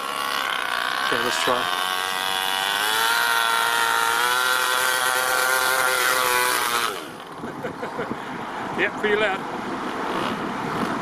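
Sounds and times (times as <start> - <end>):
rc car engine buzzing: 0.0 - 7.5.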